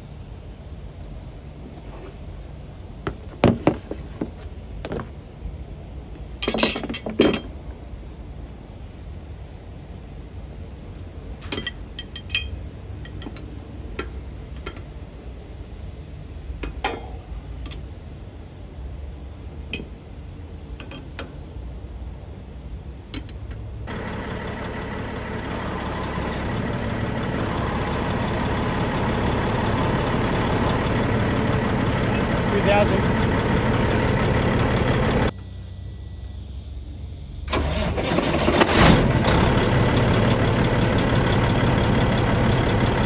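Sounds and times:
spanner clinking on metal fittings: 0:06.4 - 0:07.5, 0:11.4 - 0:14.9, 0:20.8 - 0:21.4
truck engine running: 0:23.8 - 0:43.0.

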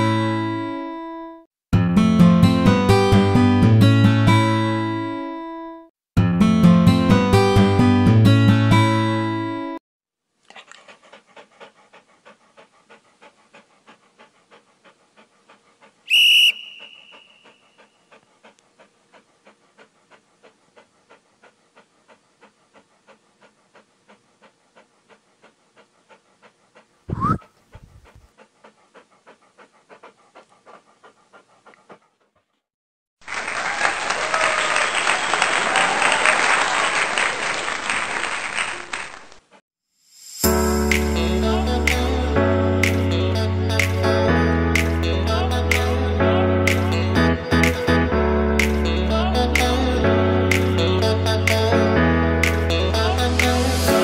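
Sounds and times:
dog panting: 0:10.4 - 0:32.7, 0:40.4 - 0:54.0
short rising whistle: 0:16.1 - 0:17.6, 0:27.1 - 0:27.4
applause: 0:33.2 - 0:39.4.

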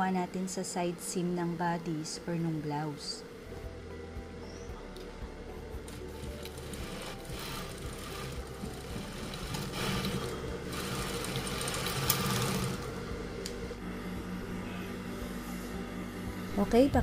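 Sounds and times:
sewing machine stitching: 0:05.9 - 0:12.9.

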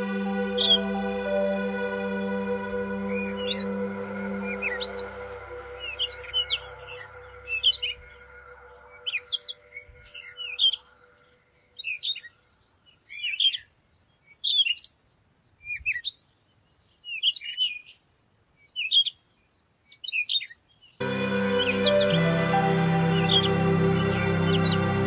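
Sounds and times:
soft background music: 0:00.0 - 0:10.8, 0:21.0 - 0:25.0
bird chirping: 0:00.0 - 0:18.0.

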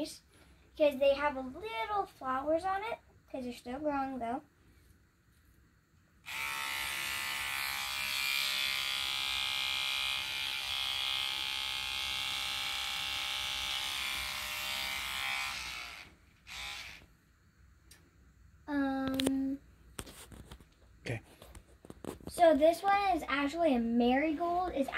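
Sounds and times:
electric toothbrush buzzing: 0:06.2 - 0:17.1.

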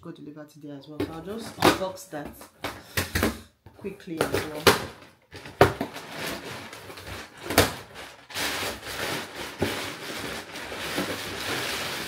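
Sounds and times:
cardboard and paper rustling: 0:01.0 - 0:12.0
cardboard flaps knocking and snapping: 0:04.2 - 0:06.2.

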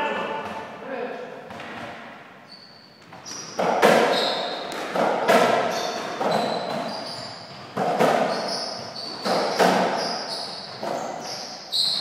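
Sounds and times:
short high squeaks: 0:02.4 - 0:04.6, 0:08.2 - 0:12.0
racquets hitting ball: 0:03.1 - 0:11.5.

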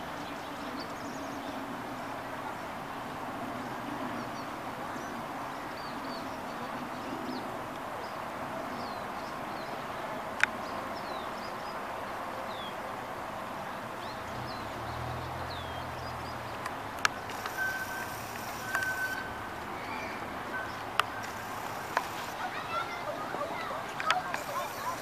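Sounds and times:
small birds chirping: 0:04.1 - 0:25.0
steady hiss: 0:16.9 - 0:23.3, 0:23.9 - 0:25.0.

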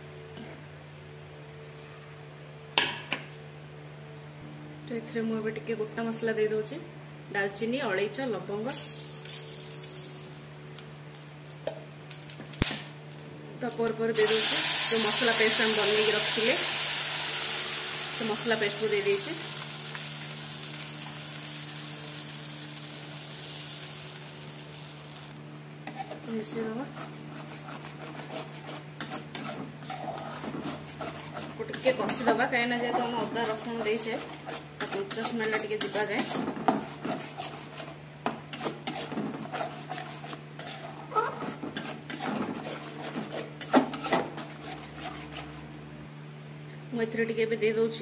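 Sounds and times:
paste sizzling in hot oil: 0:14.2 - 0:25.3
metal spatula scraping a pan: 0:25.8 - 0:45.6.

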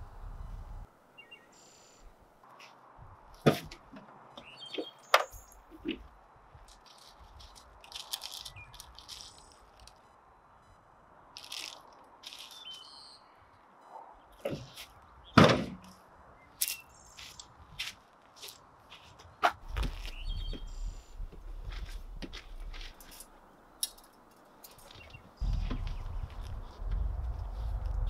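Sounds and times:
gear handling rattles and clicks: 0:06.6 - 0:10.0.

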